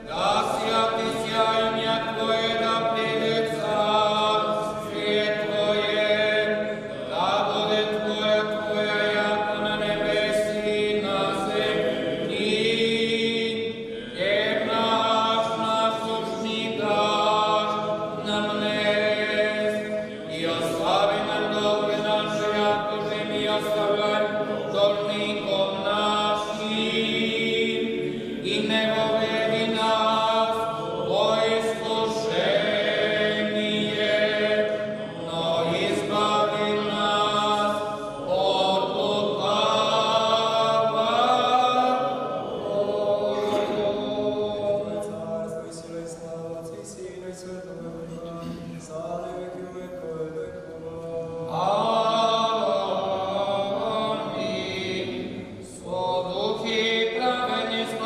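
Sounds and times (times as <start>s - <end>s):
voices chanting a cappella: 0.0s - 58.0s.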